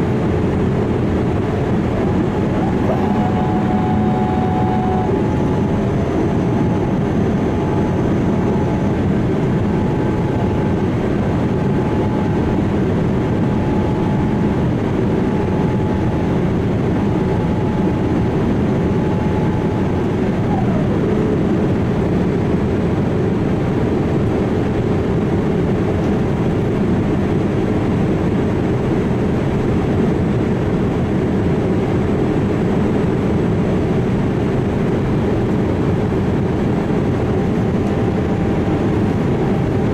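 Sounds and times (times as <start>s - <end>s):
airliner jet noise: 0.0s - 25.4s
whining tone sliding down: 2.0s - 9.0s, 11.5s - 12.4s, 13.4s - 16.4s, 17.0s - 22.0s.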